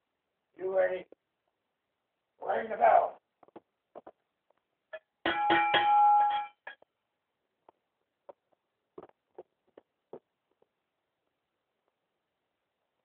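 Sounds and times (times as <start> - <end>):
bell ringing: 5.2 - 6.8.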